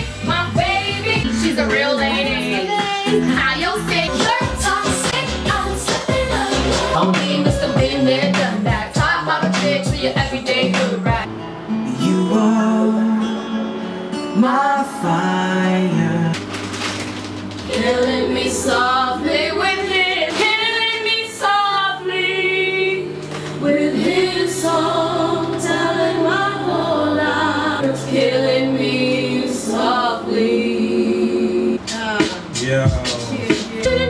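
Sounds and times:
song with layered singing: 0.0 - 11.3, 11.9 - 16.4, 17.6 - 34.0.

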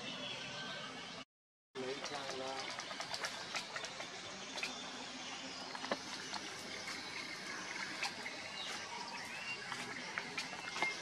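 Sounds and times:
pond water trickling and splashing: 1.8 - 11.0.

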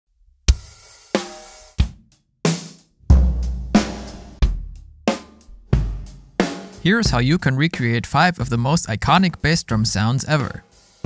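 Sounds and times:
snare and tom hits: 2.5 - 7.2
bass drum kicks: 3.1 - 4.8, 5.5 - 6.2.

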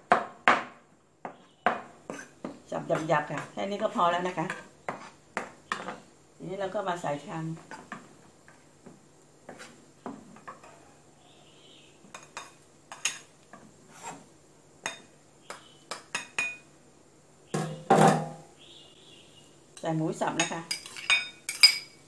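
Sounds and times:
cleaver clinking and scraping on a bowl: 1.3 - 6.0, 20.4 - 22.0.

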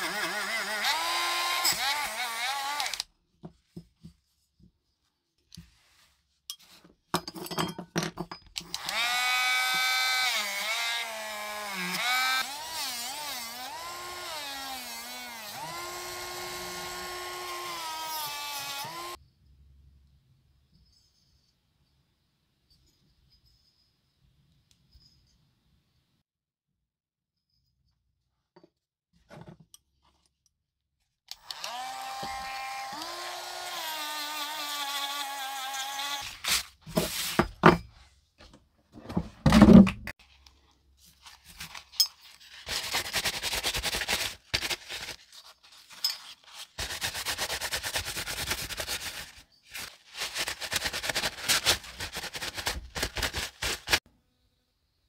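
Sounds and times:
paper towel rubbing and crinkling: 41.2 - 54.0.

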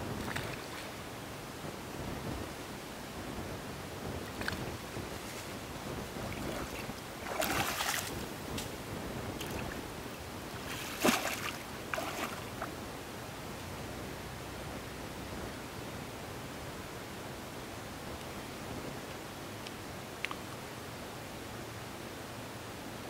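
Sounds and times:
outdoor air hiss: 0.0 - 23.0
water splashing in a lake: 0.1 - 1.0, 6.1 - 8.7, 9.3 - 12.8.

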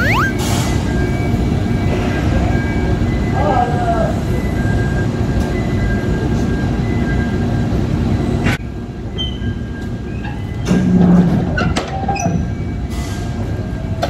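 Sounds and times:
faint two-tone beeping: 0.0 - 0.4
short high squeaks: 0.0 - 0.4.

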